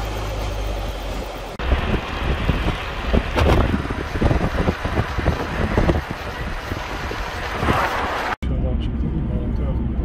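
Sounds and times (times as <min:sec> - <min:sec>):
wind buffeting microphone: 0:01.6 - 0:08.4.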